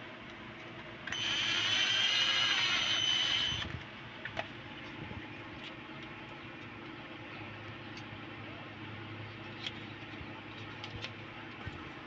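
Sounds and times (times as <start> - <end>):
drill motor whining: 1.1 - 3.8.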